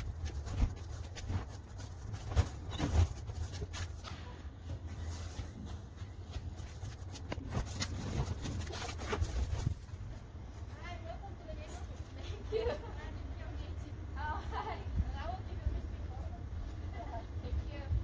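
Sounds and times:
faint scrapes and rustles: 0.0s - 12.7s.

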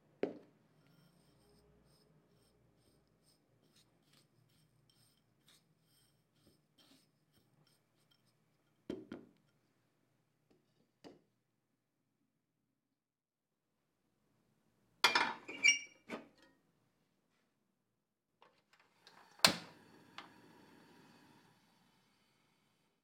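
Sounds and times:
spoon scraping in ceramic bowl: 0.8s - 8.9s.

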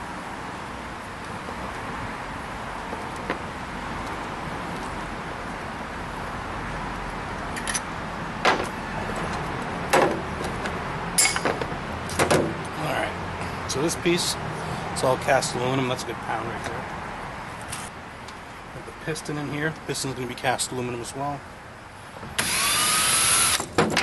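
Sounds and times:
steady background noise: 0.0s - 24.0s
metal clanks and clinks: 7.6s - 7.9s, 11.2s - 12.3s.

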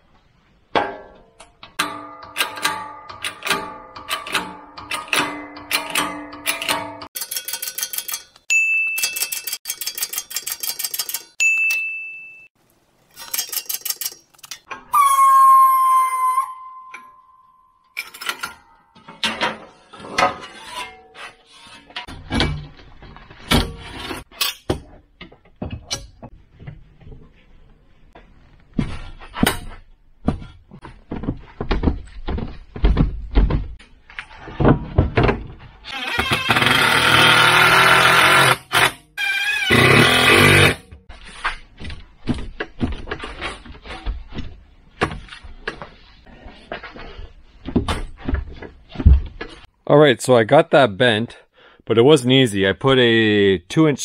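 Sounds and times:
carriage-return bell ding: 6.6s - 10.2s, 11.1s - 12.5s, 16.6s - 18.4s.

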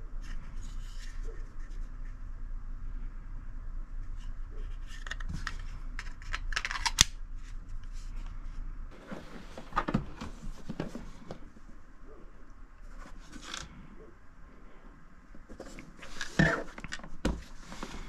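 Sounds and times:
pistol handling clicks and rattles: 5.0s - 7.2s
plastic hard case handled: 8.9s - 11.5s.

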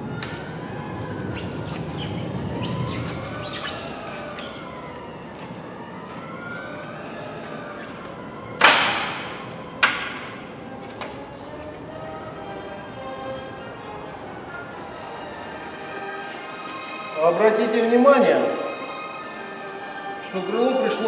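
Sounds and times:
plastic trim clips cracking: 8.6s - 9.2s.

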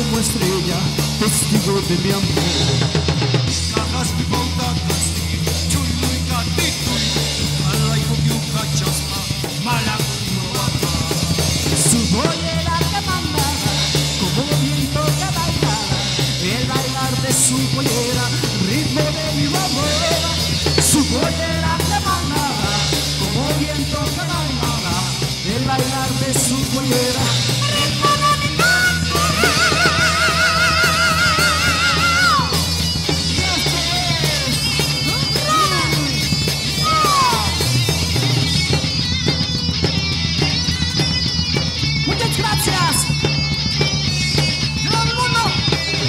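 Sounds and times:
live rock band playing: 0.0s - 46.0s
person singing: 3.7s - 37.8s.

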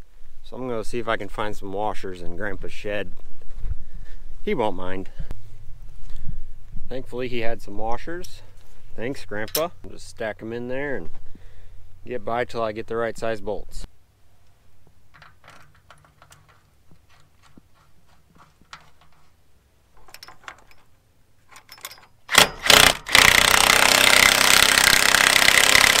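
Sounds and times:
metal clinks of bolts: 9.4s - 9.8s, 15.1s - 17.2s, 20.0s - 23.0s
impact wrench running: 22.3s - 26.0s.

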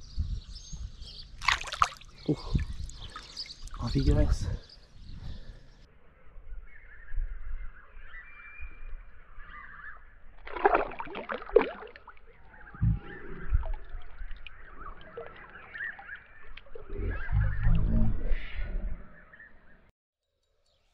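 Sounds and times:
water sloshing and splashing: 1.4s - 3.9s, 10.3s - 17.0s.

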